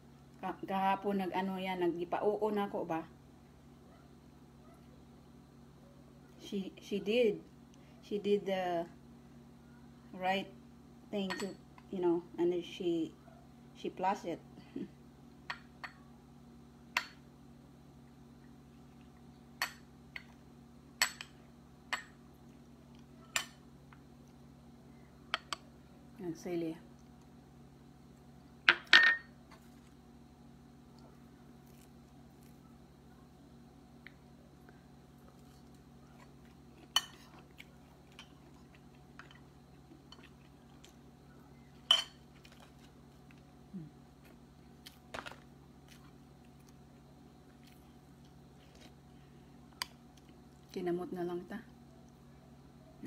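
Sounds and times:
metal spoon clinking ceramic bowl: 11.2s - 11.6s.

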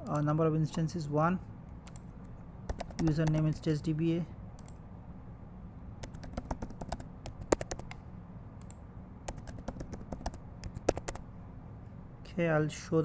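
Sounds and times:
low steady hum: 0.0s - 13.0s
computer keyboard typing: 1.8s - 2.1s, 2.7s - 3.8s, 6.0s - 8.0s, 8.6s - 11.2s.

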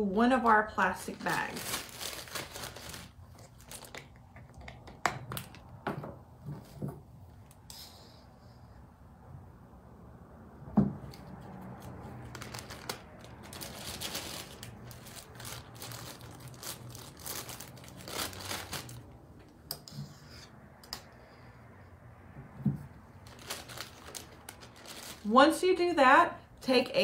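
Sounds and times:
plastic bag crinkling: 0.8s - 4.2s, 11.8s - 19.2s, 23.1s - 25.4s.

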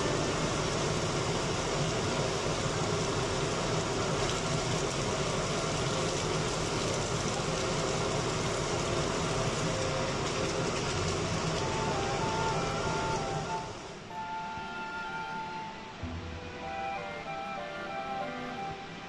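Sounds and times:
cakes sizzling in hot oil: 0.0s - 13.7s.

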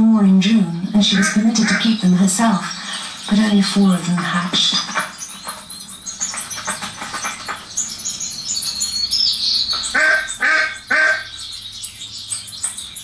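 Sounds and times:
ducklings peeping: 0.0s - 13.0s
duck quacking: 1.0s - 2.0s, 10.0s - 11.3s.

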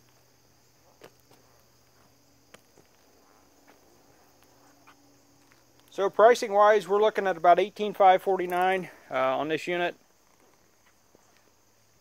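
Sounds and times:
soft ticks of footsteps: 0.9s - 6.0s, 8.4s - 8.8s, 10.2s - 11.6s.

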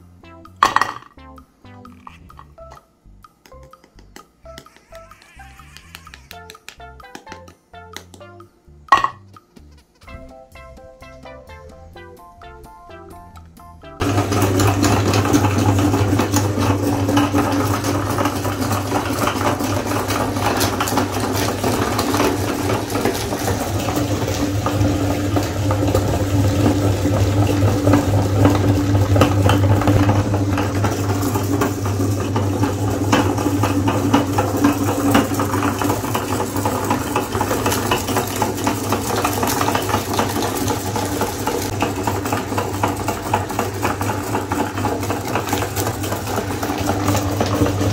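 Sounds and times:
meat grinder motor humming: 4.6s - 7.1s, 14.0s - 47.9s.

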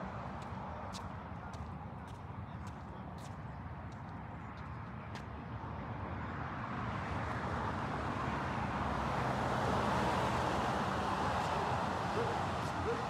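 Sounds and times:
low traffic rumble: 0.0s - 13.0s
road traffic rushing: 5.8s - 13.0s.

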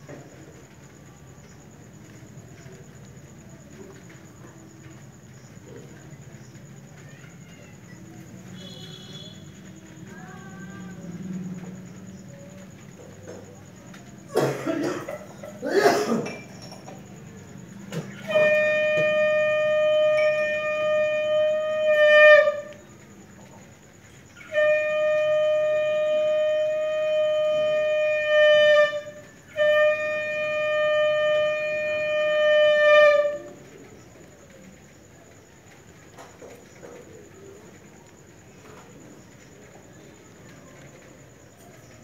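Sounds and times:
conch shell blown: 8.5s - 10.1s, 17.9s - 23.5s, 24.4s - 33.8s.

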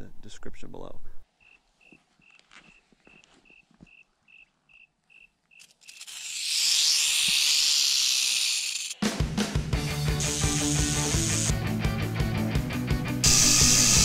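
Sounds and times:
cricket chirping: 1.4s - 9.0s
rattlesnake rattling: 5.5s - 9.0s, 10.0s - 11.6s, 13.2s - 14.0s
rock music: 9.0s - 14.0s.

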